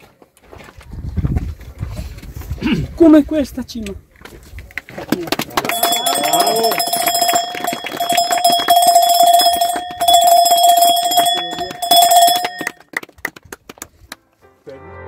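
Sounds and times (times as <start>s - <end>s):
applause: 4.8s - 14.3s
bell ringing: 5.7s - 12.9s.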